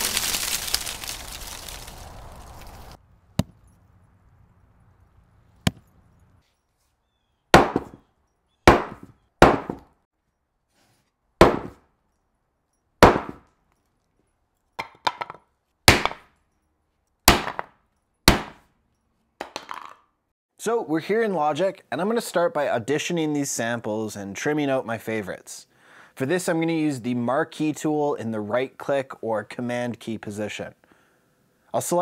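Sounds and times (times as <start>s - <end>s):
dry leaves rustling: 0.0s - 3.0s.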